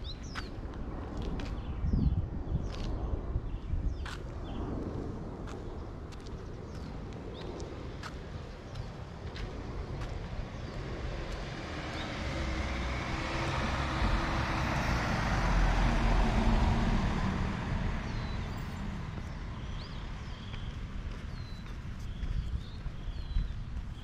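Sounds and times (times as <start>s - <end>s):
vehicle driving past: 10.4s - 20.2s.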